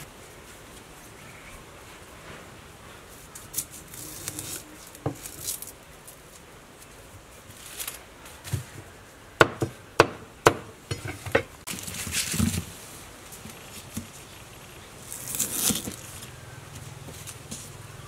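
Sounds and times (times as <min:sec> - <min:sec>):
palm-leaf packets rustling: 0:00.0 - 0:09.1, 0:11.6 - 0:18.0.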